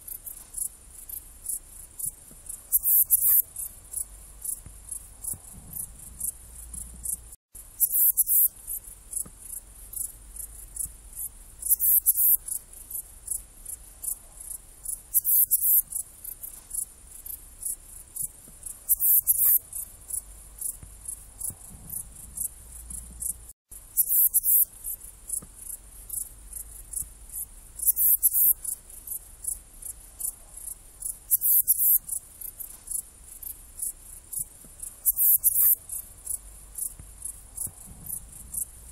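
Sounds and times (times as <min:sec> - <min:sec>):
faint cricket ticks: 0:00.0 - 0:38.9
bush cricket chirping: 0:00.1 - 0:38.9.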